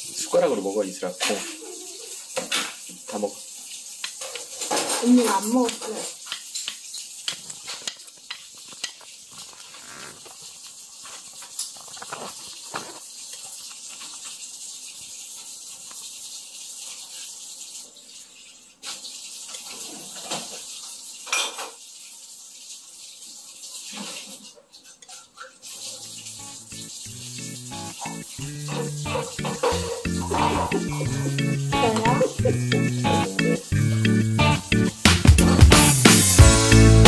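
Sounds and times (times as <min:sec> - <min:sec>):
utensils clicking on a ceramic plate: 0:04.0 - 0:09.1.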